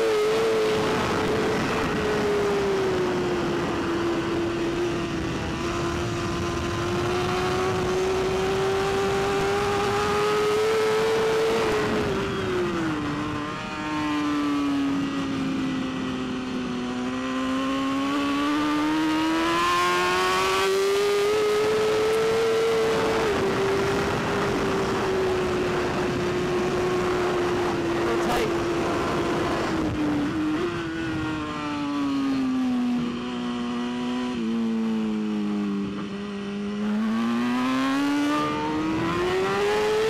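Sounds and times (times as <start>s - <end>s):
motorcycle engine revving: 0.0s - 40.0s.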